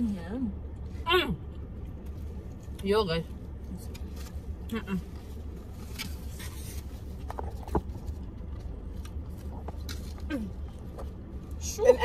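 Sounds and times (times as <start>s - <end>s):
low car rumble: 0.0s - 12.0s
light scraping and rustling: 3.6s - 11.2s.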